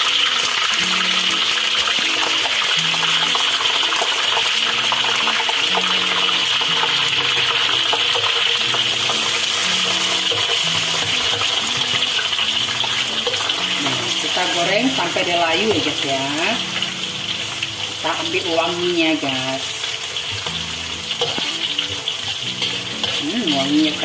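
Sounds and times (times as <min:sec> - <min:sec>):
oil sizzling in a wok: 0:00.0 - 0:24.0.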